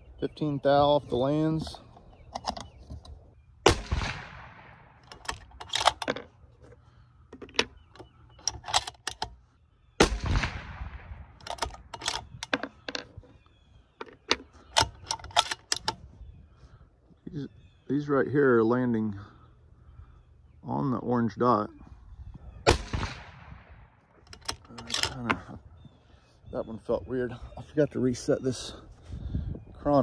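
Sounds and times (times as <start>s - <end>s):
metallic clicks of rifle bolt: 2.0s - 9.4s, 11.3s - 13.4s, 14.0s - 16.1s, 24.1s - 25.4s
rifle shots with echo: 3.6s - 5.1s, 10.0s - 11.4s, 22.6s - 24.0s.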